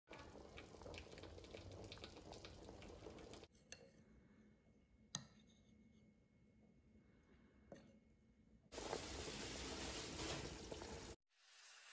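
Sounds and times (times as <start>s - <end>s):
stew bubbling in a pot: 0.1s - 3.5s.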